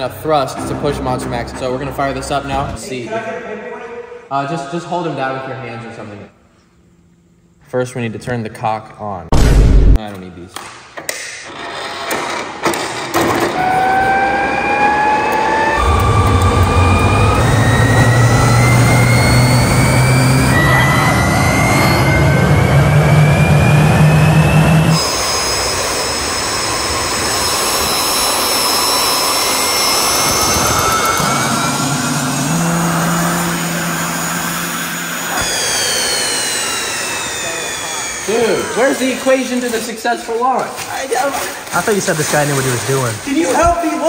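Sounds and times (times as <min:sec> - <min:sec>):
jet turbine whine: 0:13.2 - 0:40.4
rushing exhaust noise: 0:13.7 - 0:39.8.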